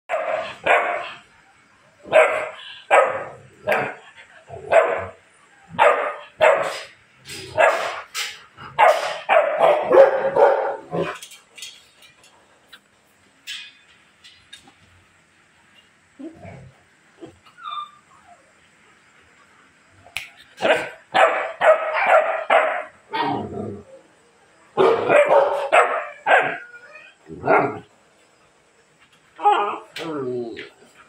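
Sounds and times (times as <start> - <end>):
puppy barking: 0.1 - 1.1, 2.1 - 4.0, 4.7 - 5.2, 5.8 - 6.8, 8.8 - 11.0, 20.6 - 23.3, 24.8 - 26.7.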